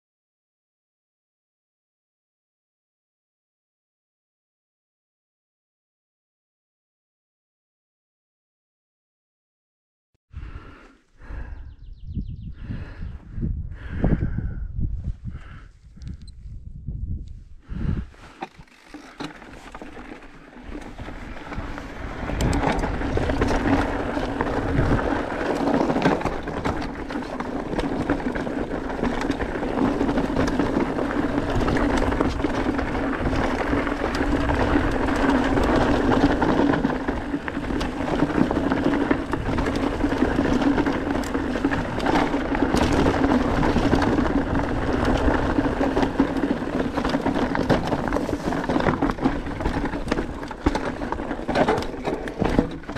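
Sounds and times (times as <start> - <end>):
bike rattling over bumps: 17.7 - 52.9
tyres on loose stones: 18.2 - 52.9.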